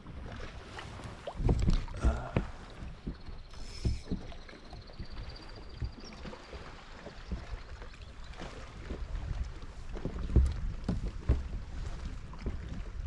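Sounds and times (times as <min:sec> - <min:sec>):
waves lapping against kayak hull: 0:00.0 - 0:13.0.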